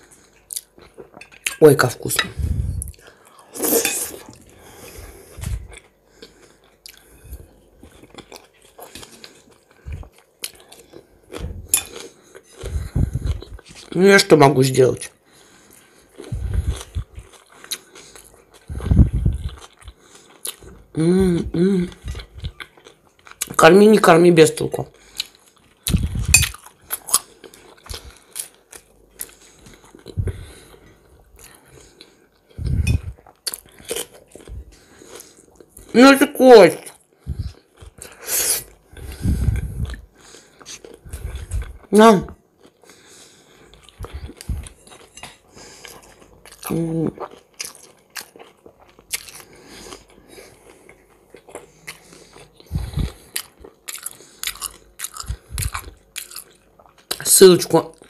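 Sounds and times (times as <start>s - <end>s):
person chewing food: 0.0s - 14.0s, 15.0s - 23.6s, 24.9s - 36.0s, 36.8s - 57.2s.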